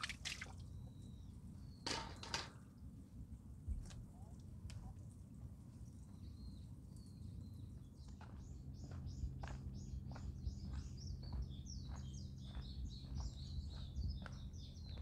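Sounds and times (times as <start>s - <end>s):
songbird chirping: 0.0s - 2.0s, 5.7s - 15.0s
footsteps on forest path: 8.1s - 15.0s.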